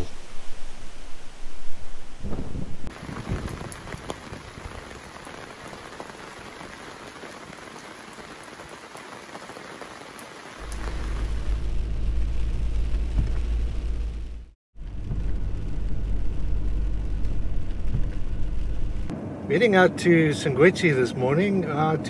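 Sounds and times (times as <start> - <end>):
steady rain hiss: 0.0 - 19.1
raindrops ticking: 2.9 - 13.7
vehicle rumble from inside cab: 10.6 - 19.2.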